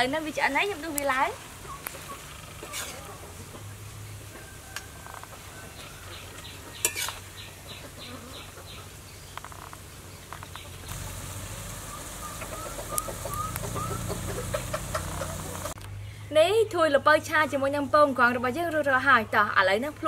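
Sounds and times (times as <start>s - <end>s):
food sizzling: 0.0s - 3.9s, 10.9s - 15.8s
chickens clucking: 1.6s - 9.0s, 10.4s - 15.8s
metal spatula stirring in wok: 2.6s - 3.1s, 6.8s - 7.3s
spatula clanging against pan: 6.8s - 7.2s.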